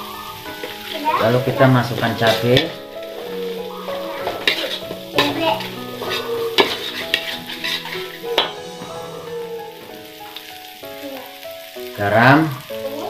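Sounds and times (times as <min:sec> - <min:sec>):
oil sizzling: 0:00.0 - 0:13.0
metal spatula scraping a wok: 0:00.5 - 0:08.8.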